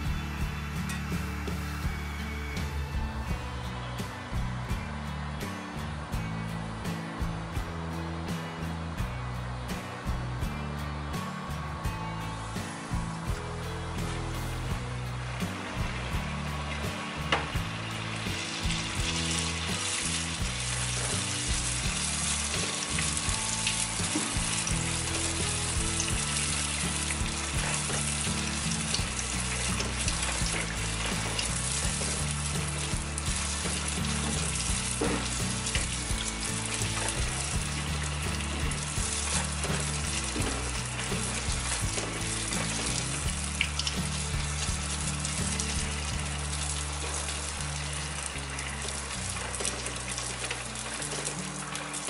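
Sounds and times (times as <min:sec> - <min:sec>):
soft background music: 0:00.0 - 0:52.0
dough sizzling in hot oil: 0:12.4 - 0:52.0.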